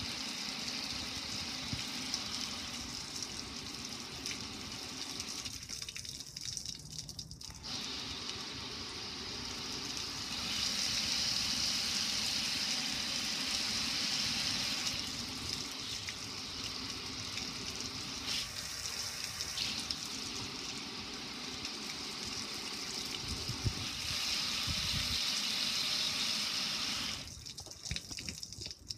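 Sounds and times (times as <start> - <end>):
water pouring onto concrete: 0.0 - 28.9
water spraying onto metal grill: 7.4 - 28.3.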